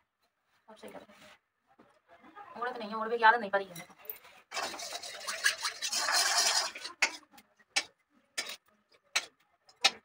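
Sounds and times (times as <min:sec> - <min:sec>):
kitchen utensils scraping clatter: 0:03.8 - 0:07.3.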